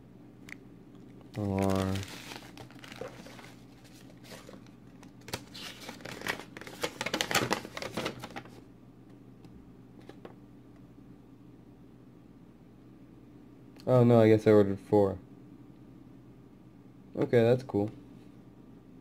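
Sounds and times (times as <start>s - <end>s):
plastic packaging crinkling: 1.2s - 8.6s.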